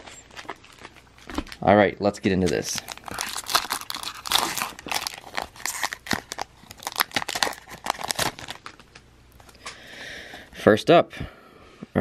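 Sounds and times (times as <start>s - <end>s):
wrapper tearing and crinkling: 2.4s - 9.0s.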